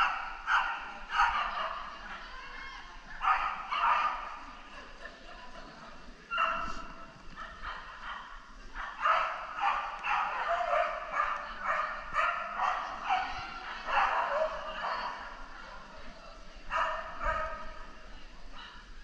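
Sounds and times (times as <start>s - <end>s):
dog barking: 0.0s - 2.0s, 3.2s - 4.4s, 6.3s - 15.2s, 16.7s - 17.7s.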